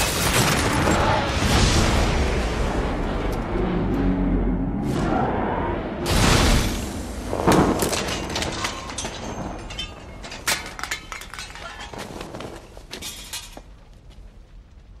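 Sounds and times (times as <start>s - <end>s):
debris and glass clattering: 0.0s - 1.2s, 7.3s - 14.0s.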